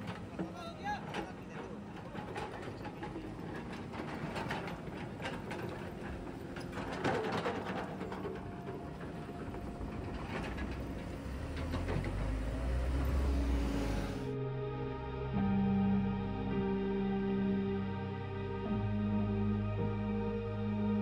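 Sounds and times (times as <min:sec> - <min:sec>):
metallic clanks and knocks: 0:00.0 - 0:13.4
excavator diesel engine running: 0:00.0 - 0:14.7.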